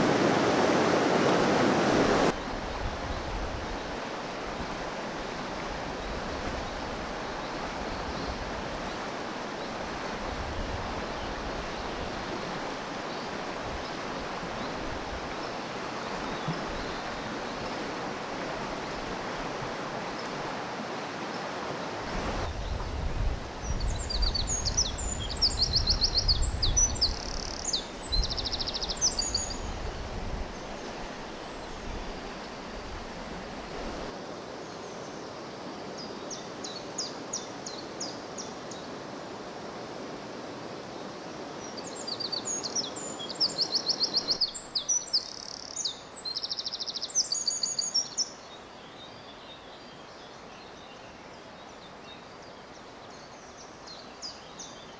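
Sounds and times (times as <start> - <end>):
flowing river water: 0.0 - 54.9
songbird singing: 14.6 - 17.9, 22.5 - 33.2, 34.4 - 39.0, 40.9 - 54.9.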